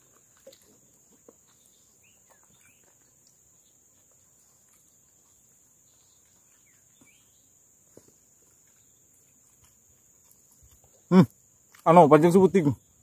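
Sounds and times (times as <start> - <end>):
faint bird chirps: 0.6 - 9.6.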